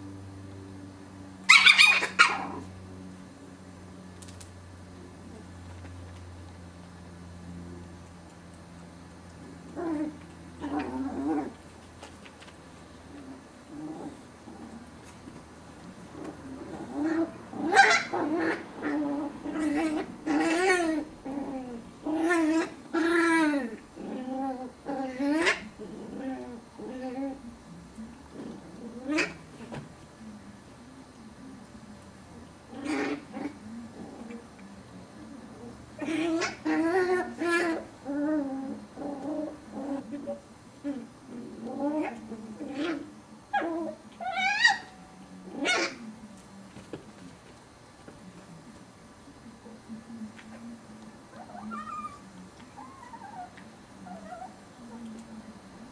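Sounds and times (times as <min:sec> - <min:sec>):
puppies whining and grumbling: 0:16.1 - 0:27.5, 0:35.4 - 0:46.0, 0:51.3 - 0:55.0
puppy whimpering: 0:43.6 - 0:45.0, 0:51.4 - 0:52.2, 0:52.8 - 0:54.6.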